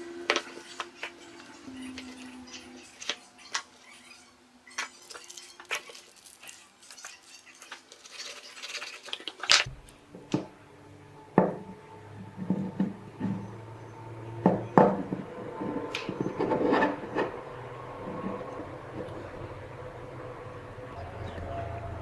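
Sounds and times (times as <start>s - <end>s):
plastic bag crinkling: 4.9s - 9.7s.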